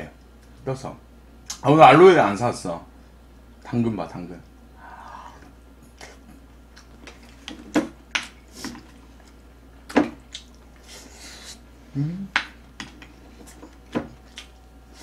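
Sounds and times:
person humming: 4.8 - 5.5, 11.9 - 12.4.

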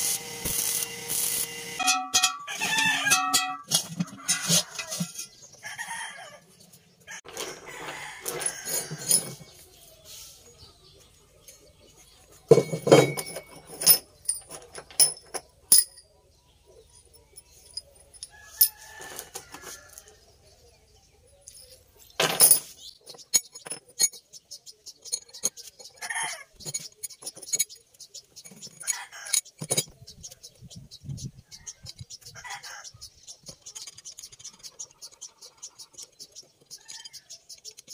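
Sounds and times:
steel parts clinking on wood: 1.8 - 5.4, 8.2 - 9.6, 12.5 - 16.1, 16.9 - 19.4, 21.3 - 30.0, 35.9 - 37.9
chickens clucking: 2.0 - 12.5, 24.2 - 37.9.

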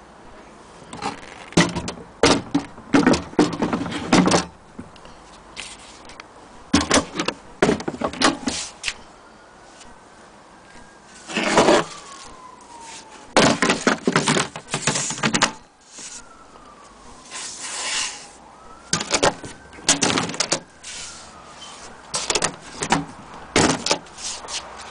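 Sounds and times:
knocking and rustling of handling: 0.9 - 5.0, 5.6 - 8.6, 13.4 - 15.6, 22.1 - 24.9
siren wailing: 8.4 - 23.5.

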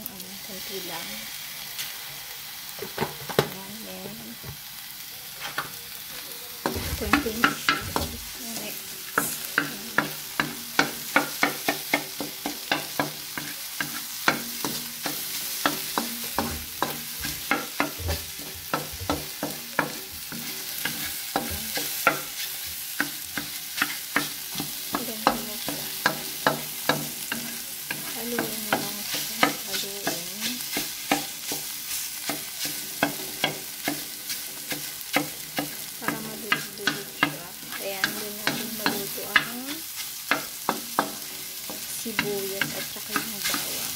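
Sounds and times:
eggs sizzling: 0.0 - 43.9
wooden spatula scraping metal pan: 6.6 - 11.6.

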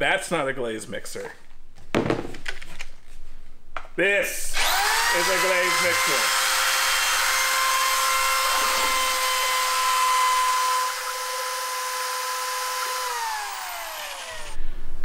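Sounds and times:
drill mixer motor whining: 4.6 - 14.6
motor winding down: 4.6 - 14.6.

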